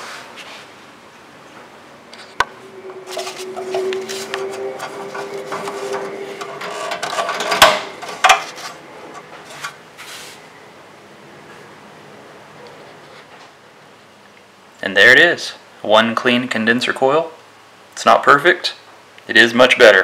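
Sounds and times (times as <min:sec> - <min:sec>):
plastic rubbing and scraping: 0:03.1 - 0:10.3.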